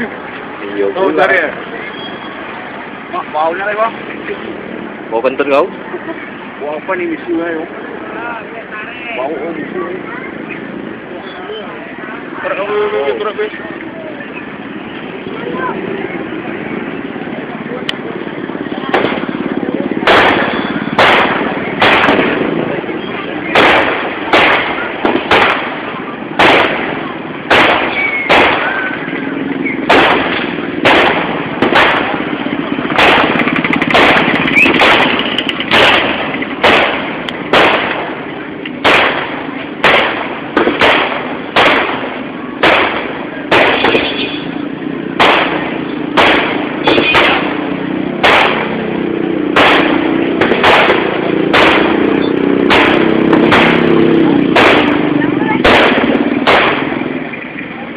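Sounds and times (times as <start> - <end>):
background din: 7.6 - 57.9
fireworks bangs: 12.1 - 57.9.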